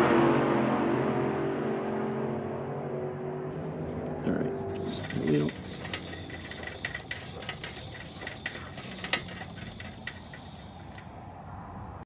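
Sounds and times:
light mechanical clicking: 4.9s - 11.2s.

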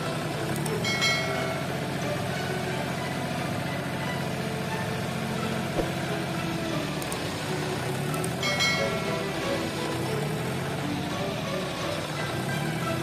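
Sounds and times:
tractor engine running: 0.0s - 13.0s
short knock: 5.8s - 6.0s.

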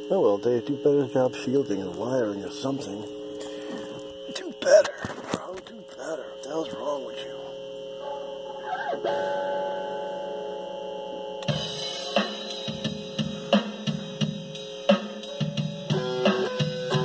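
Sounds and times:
drum track with kick snare cymbals: 11.4s - 17.0s
electric guitar playing: 15.9s - 17.0s.

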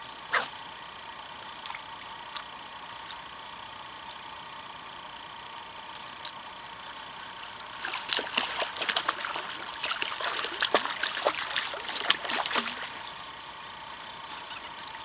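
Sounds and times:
fish splashing at water surface: 7.2s - 13.2s.

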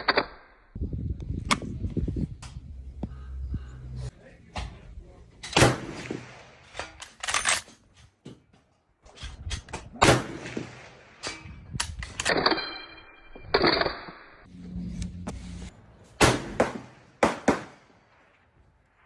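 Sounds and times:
rifle shots: 5.4s - 7.6s, 16.2s - 18.2s
high ringing: 12.4s - 14.0s.

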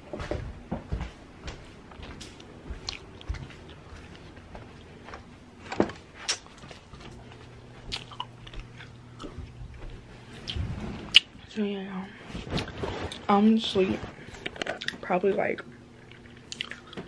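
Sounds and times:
soft rustling: 9.4s - 14.4s.

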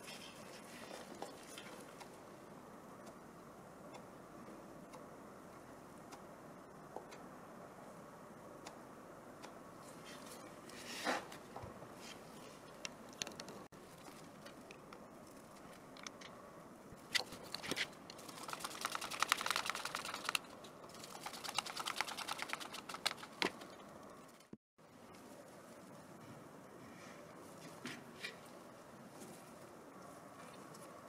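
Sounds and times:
screwdriver clicking rapidly: 18.2s - 23.4s.

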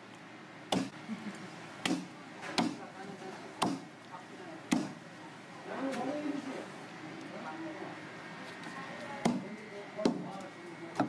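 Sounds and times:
knife chopping on wooden block: 1.8s - 2.8s, 3.6s - 3.9s, 4.7s - 5.0s.

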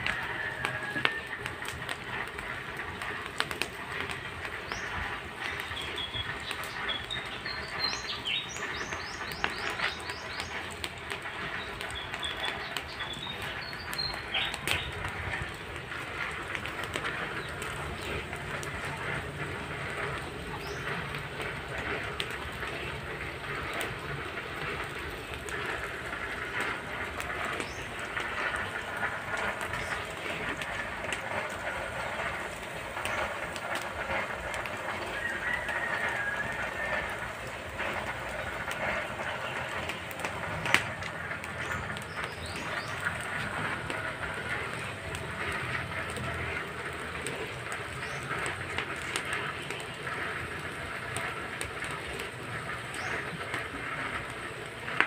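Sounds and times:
wood fire crackling: 0.0s - 55.0s.

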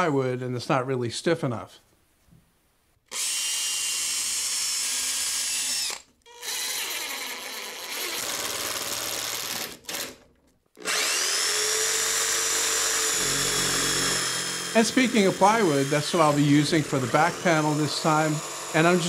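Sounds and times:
cordless drill boring through steel: 3.1s - 10.2s, 10.8s - 19.0s
jigsaw motor running: 3.1s - 10.2s, 10.8s - 19.0s
impact driver driving screw: 10.8s - 19.0s.

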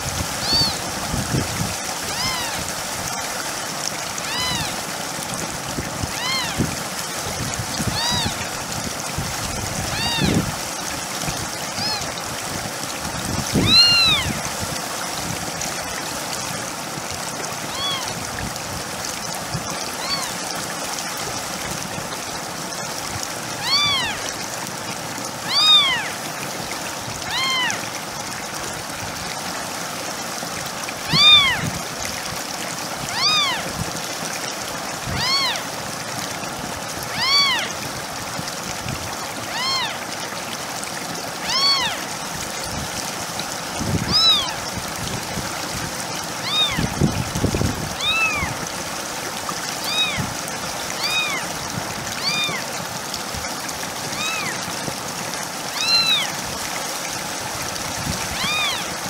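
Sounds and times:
water fountain trickling: 0.0s - 59.0s
kitten meowing: 0.4s - 0.8s, 2.1s - 2.6s, 4.2s - 4.7s, 6.1s - 6.6s, 7.9s - 8.4s, 9.9s - 10.4s, 11.8s - 12.1s, 13.6s - 14.3s, 17.7s - 18.1s, 20.0s - 20.3s, 23.6s - 24.2s, 25.4s - 26.1s, 27.3s - 27.8s, 31.1s - 31.6s, 33.1s - 33.6s, 35.1s - 35.6s, 37.1s - 37.7s, 39.5s - 40.0s, 41.4s - 42.0s, 44.1s - 44.6s, 46.4s - 46.9s, 48.0s - 48.6s, 49.8s - 50.3s, 51.0s - 51.5s, 52.2s - 52.7s, 54.1s - 54.6s, 55.7s - 56.3s, 58.4s - 58.9s.

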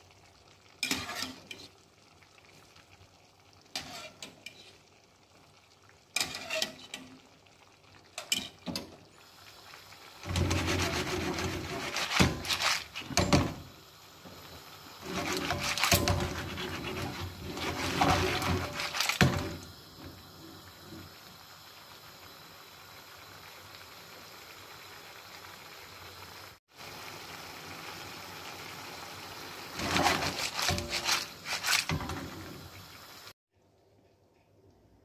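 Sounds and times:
sauce sizzling: 0.0s - 33.4s
shells and pasta clattering in pan: 6.1s - 9.1s, 10.2s - 13.8s, 15.0s - 19.8s, 29.7s - 32.9s.

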